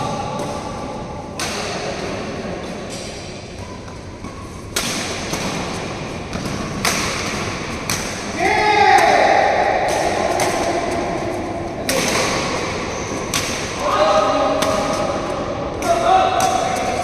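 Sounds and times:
racket hitting shuttlecock: 0:02.7 - 0:17.0.

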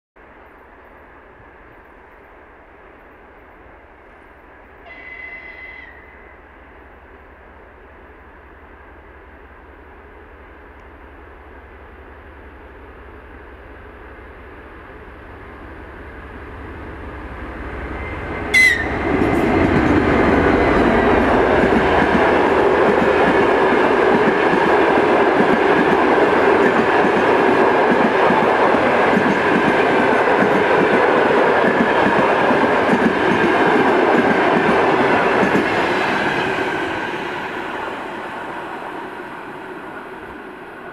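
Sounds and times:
diesel locomotive passing: 0:00.3 - 0:40.9
train wheels clattering on rails: 0:18.5 - 0:38.2.

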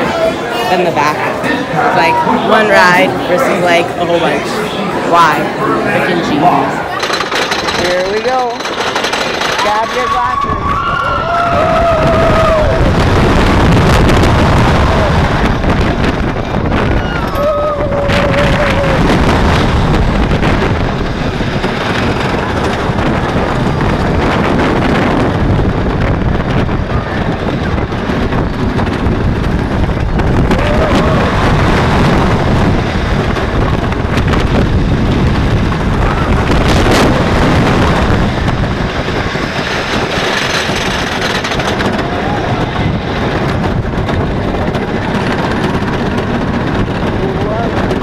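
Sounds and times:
roller coaster on wooden track: 0:00.0 - 0:48.0
wind buffeting microphone: 0:00.0 - 0:48.0
riders screaming: 0:09.6 - 0:13.1, 0:16.8 - 0:19.2, 0:30.4 - 0:32.4.

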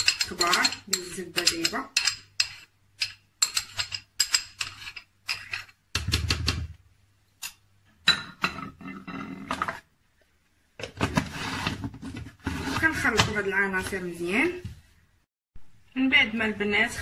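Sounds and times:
metal spoon scraping a bowl: 0:00.0 - 0:05.8.

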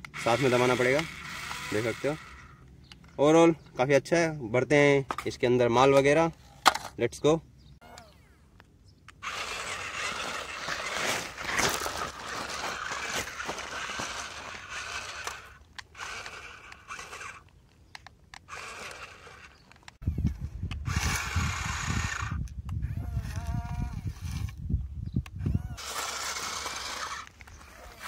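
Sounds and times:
small electric motors whirring: 0:00.0 - 0:03.5, 0:09.1 - 0:24.6, 0:25.2 - 0:28.0
tyres crunching over gravel: 0:09.2 - 0:17.7, 0:25.8 - 0:28.0.

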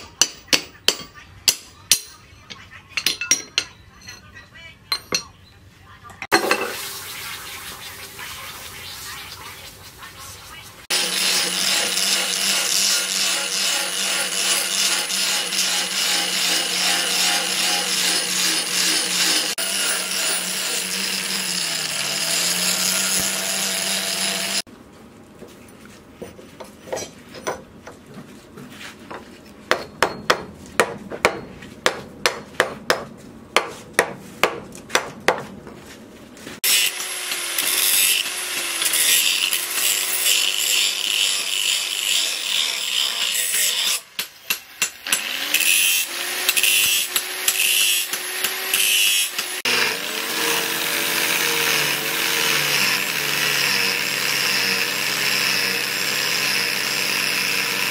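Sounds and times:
angle grinder grinding steel: 0:10.9 - 0:24.7, 0:36.6 - 0:57.9.

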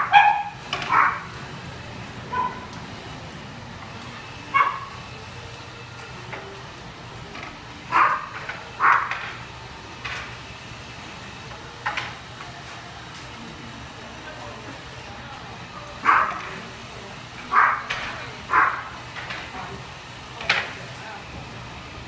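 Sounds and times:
dogs barking: 0:00.0 - 0:01.4, 0:02.3 - 0:02.9, 0:04.5 - 0:05.1, 0:07.9 - 0:09.4, 0:16.0 - 0:16.6, 0:17.4 - 0:19.1.

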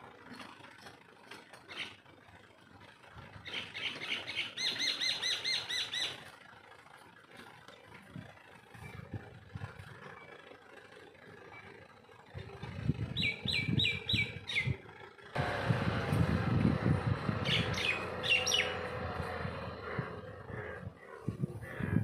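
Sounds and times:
tractor engine running: 0:00.0 - 0:22.0
birds chirping: 0:13.2 - 0:14.8, 0:15.4 - 0:22.0.

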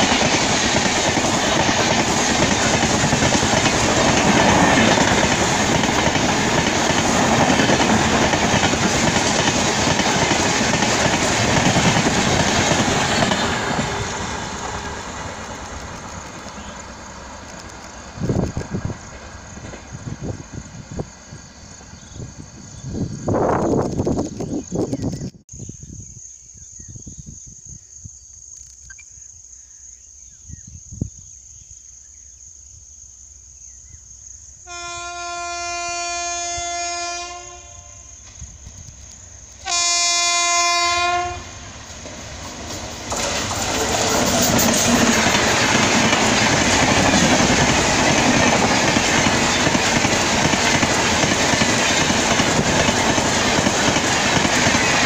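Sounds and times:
train wheels rushing on rail: 0:00.0 - 0:25.1, 0:34.7 - 0:55.0
locomotive horn blasts: 0:34.7 - 0:38.2, 0:39.6 - 0:41.6.

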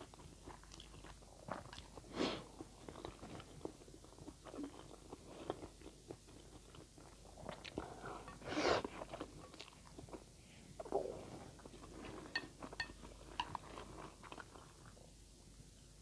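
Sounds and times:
wet chewing: 0:00.0 - 0:08.0.

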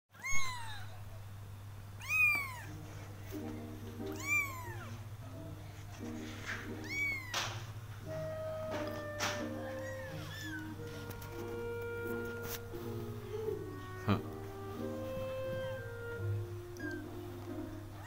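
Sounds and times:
kitten meowing: 0:00.2 - 0:01.0, 0:02.0 - 0:02.8, 0:04.1 - 0:04.9, 0:06.8 - 0:07.6, 0:08.8 - 0:10.8, 0:16.6 - 0:17.2.

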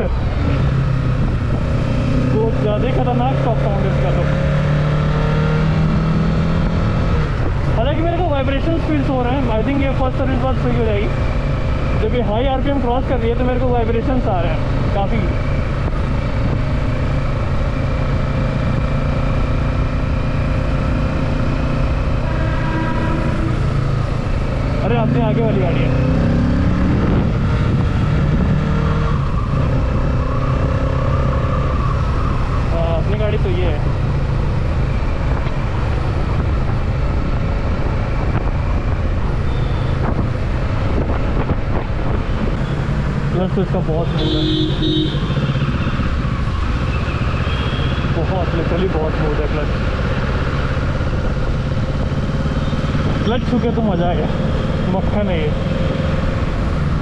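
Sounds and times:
wind rushing over microphone: 0:00.0 - 0:03.8, 0:05.6 - 0:08.8, 0:13.0 - 0:25.1, 0:25.7 - 0:44.1, 0:49.7 - 0:57.0
motorcycle engine rumbling: 0:00.0 - 0:57.0.

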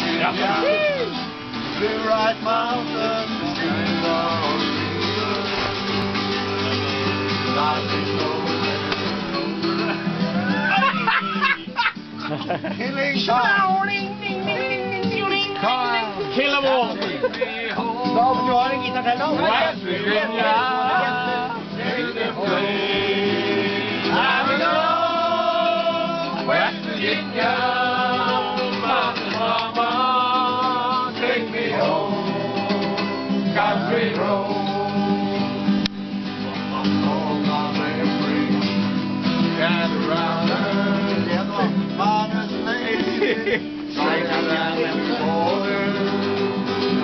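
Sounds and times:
acoustic guitar strumming chords: 0:00.0 - 0:47.0
men singing: 0:00.0 - 0:47.0.

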